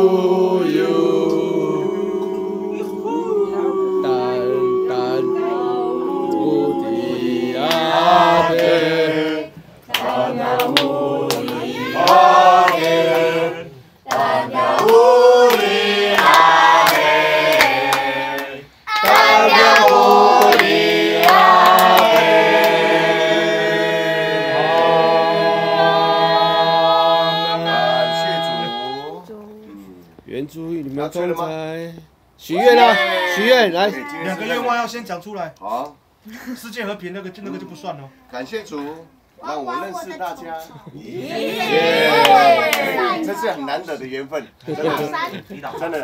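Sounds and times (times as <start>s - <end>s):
group of people singing: 0.0s - 29.2s, 41.0s - 43.2s.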